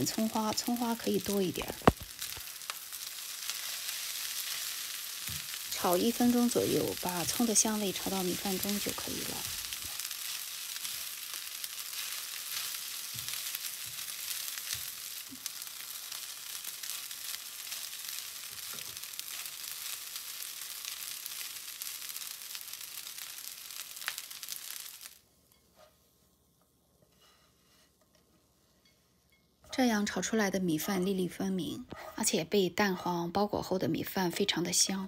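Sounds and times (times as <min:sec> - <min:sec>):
rice sizzling in oil: 0:00.0 - 0:26.4.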